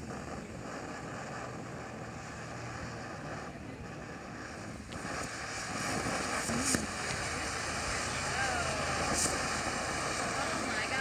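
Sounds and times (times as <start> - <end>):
firework fountain hissing: 0.0 - 11.0
sharp crack: 4.9 - 10.6.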